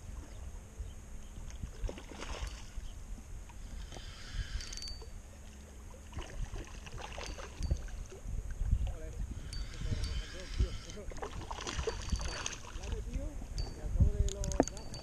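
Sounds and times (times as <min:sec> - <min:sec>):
wind rumbling on microphone: 0:00.0 - 0:15.0
sea water sloshing at shore: 0:05.4 - 0:08.3, 0:10.3 - 0:13.8
small clicks and taps: 0:14.2 - 0:15.0.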